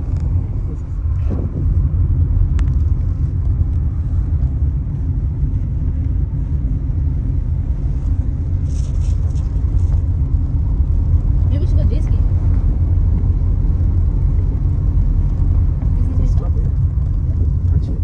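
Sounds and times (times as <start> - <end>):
low rumble of moving car: 0.0 - 18.0.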